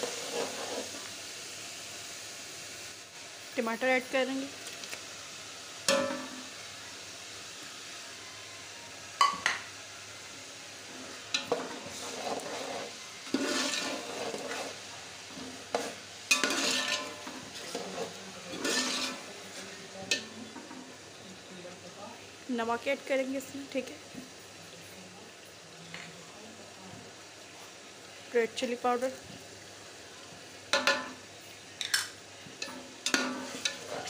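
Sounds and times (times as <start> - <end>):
food sizzling in hot oil: 0.0 - 34.0
metal spoon scraping pot: 11.4 - 14.8, 15.7 - 19.3, 32.6 - 34.0.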